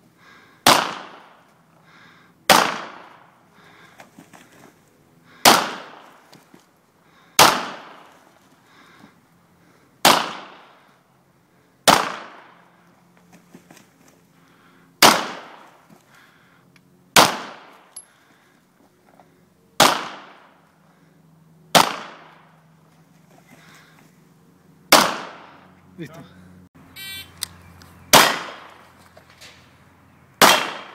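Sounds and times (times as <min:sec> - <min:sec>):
handgun shots with echo: 0:00.6 - 0:01.3, 0:24.9 - 0:25.5, 0:28.1 - 0:28.7, 0:30.4 - 0:30.9.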